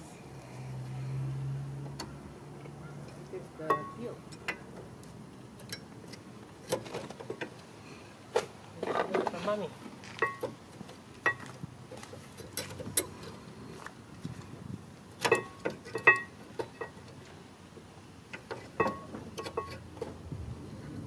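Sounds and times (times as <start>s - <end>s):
metallic clinks of brake parts: 3.0s - 4.7s, 15.2s - 17.2s, 18.3s - 20.1s.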